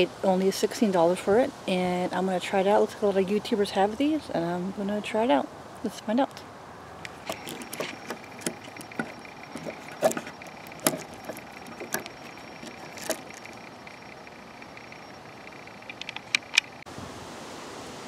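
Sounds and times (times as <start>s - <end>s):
hand-handling noise: 7.0s - 16.8s
plastic tripod legs clicking: 7.1s - 16.8s.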